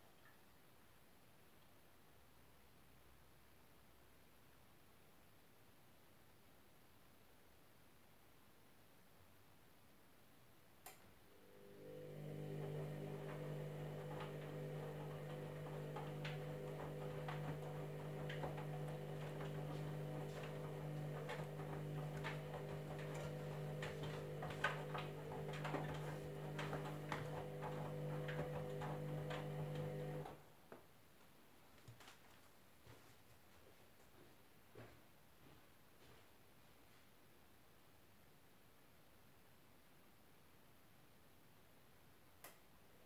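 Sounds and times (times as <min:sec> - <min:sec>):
washing machine drum motor humming: 0:11.5 - 0:30.4
laundry tumbling knocks: 0:12.3 - 0:30.3.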